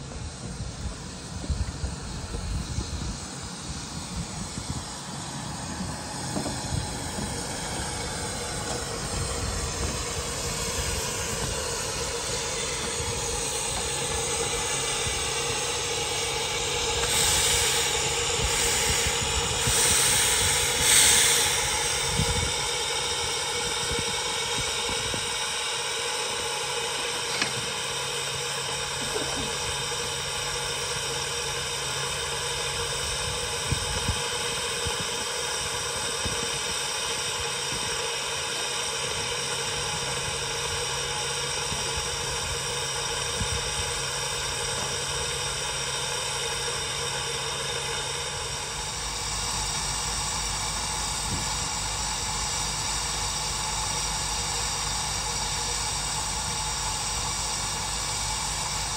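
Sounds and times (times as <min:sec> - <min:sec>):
bursts of steam hiss: 0:00.0 - 0:58.9
miniature train running: 0:00.0 - 0:58.9.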